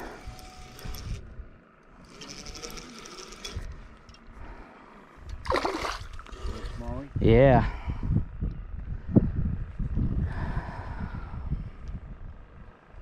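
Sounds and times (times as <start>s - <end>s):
fishing reel whirring: 0.0s - 1.2s, 2.0s - 3.8s.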